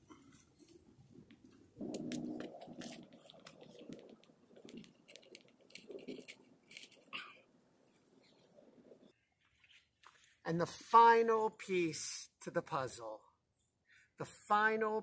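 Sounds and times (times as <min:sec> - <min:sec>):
pine boughs rustling and crackling: 0:00.1 - 0:10.5.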